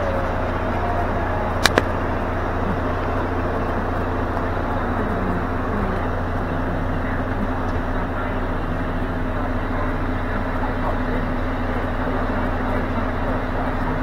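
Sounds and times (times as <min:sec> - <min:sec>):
diesel truck engine idling: 0:00.0 - 0:14.0
sharp clicks: 0:01.6 - 0:02.0.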